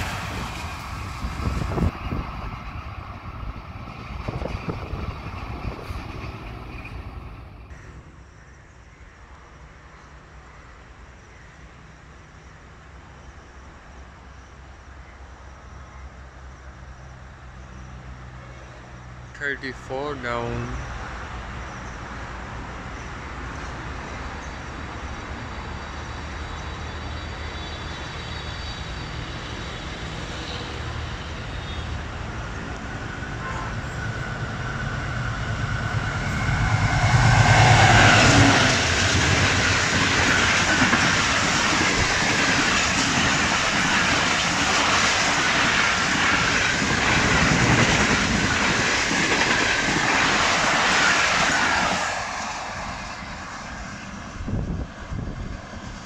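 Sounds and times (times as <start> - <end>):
train wheels clattering on rails: 0.0 - 8.0, 27.8 - 53.0
locomotive rumble: 0.0 - 8.4, 17.3 - 56.0.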